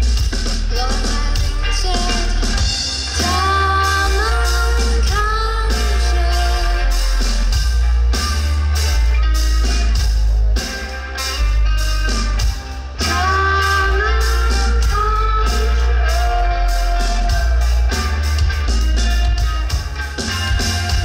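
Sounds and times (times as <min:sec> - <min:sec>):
bass guitar: 0:00.0 - 0:21.0
drums: 0:00.0 - 0:21.0
electric guitar: 0:00.0 - 0:21.0
person singing: 0:00.6 - 0:07.2, 0:13.0 - 0:18.4.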